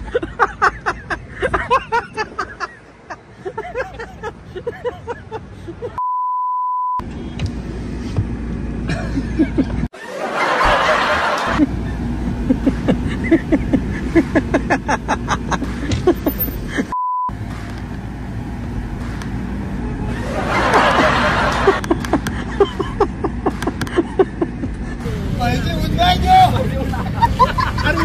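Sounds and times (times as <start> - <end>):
people laughing: 0.0 - 6.0, 8.9 - 17.0, 20.0 - 25.0, 26.1 - 28.0
street traffic: 0.0 - 28.0
censor bleep: 6.0 - 7.0, 17.0 - 17.3
voices: 25.0 - 28.0.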